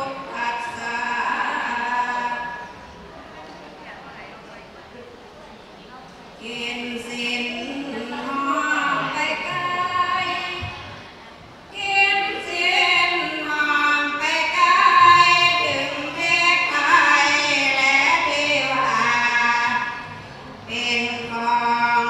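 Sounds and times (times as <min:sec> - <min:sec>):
women singing in unison: 0:06.4 - 0:11.0, 0:11.7 - 0:22.0.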